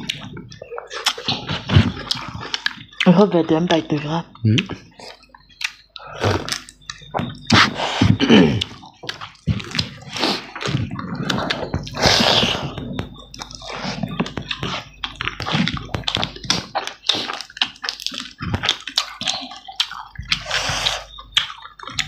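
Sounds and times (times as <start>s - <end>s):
wet chewing and lip smacking: 0.0s - 22.0s.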